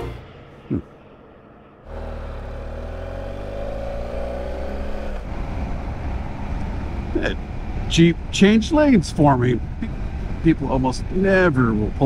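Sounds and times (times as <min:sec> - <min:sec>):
motorcycle engine accelerating: 0:00.0 - 0:00.6, 0:01.8 - 0:12.0
wind noise: 0:05.2 - 0:12.0.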